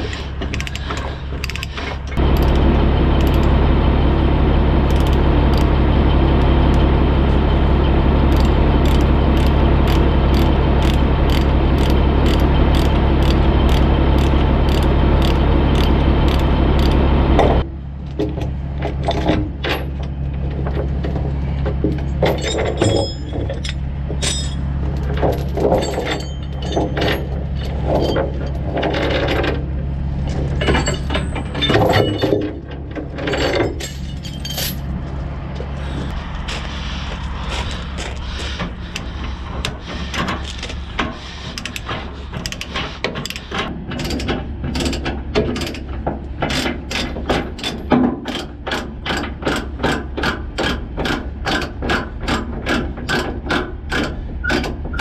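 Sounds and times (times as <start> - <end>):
low engine hum: 0.0 - 41.4
ratchet chain binder clicking: 4.9 - 5.7, 8.3 - 17.0
load chains clanking: 22.2 - 29.5, 30.5 - 34.9.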